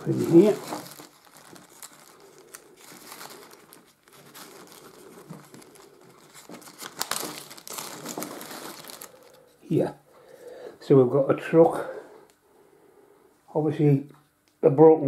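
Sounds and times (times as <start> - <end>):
plastic bag crinkling: 0.0 - 9.9.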